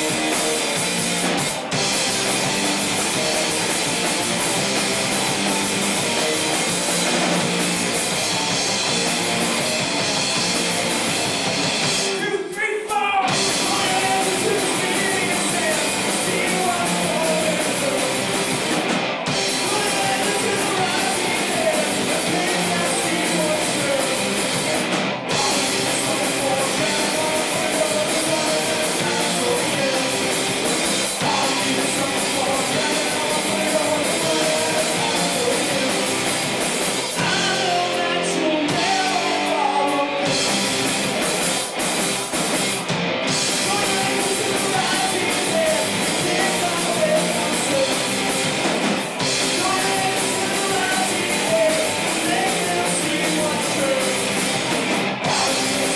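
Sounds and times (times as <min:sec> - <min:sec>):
electric guitar line: 0:00.0 - 0:12.2, 0:13.2 - 0:55.9
live rock band playing: 0:00.0 - 0:55.9.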